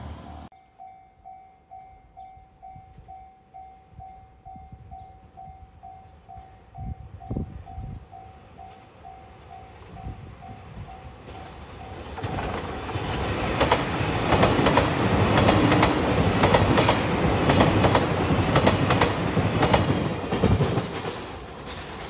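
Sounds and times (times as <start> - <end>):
train passing at speed: 0.0 - 0.5, 4.0 - 22.0
wheels clacking over rail joints: 11.3 - 22.0.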